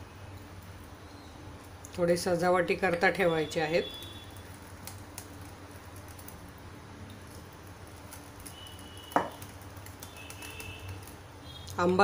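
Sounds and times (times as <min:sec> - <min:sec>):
whisk tapping glass bowl: 0:07.8 - 0:11.2.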